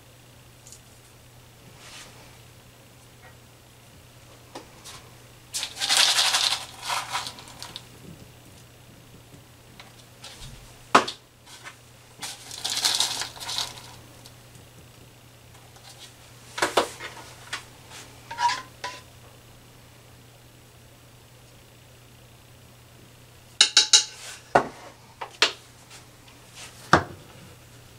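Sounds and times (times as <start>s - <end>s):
faint steady hum: 0.0s - 27.9s
rustling and scraping dough: 0.5s - 3.4s, 4.2s - 14.9s, 15.5s - 19.1s, 23.9s - 27.9s.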